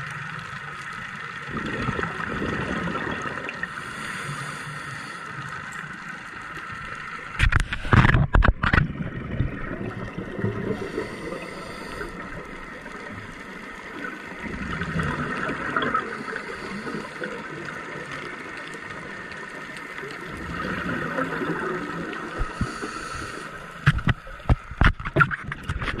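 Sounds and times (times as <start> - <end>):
steady underwater hiss: 0.0 - 8.3, 9.1 - 24.9
diver exhaling bubbles: 1.5 - 3.7, 14.4 - 17.0.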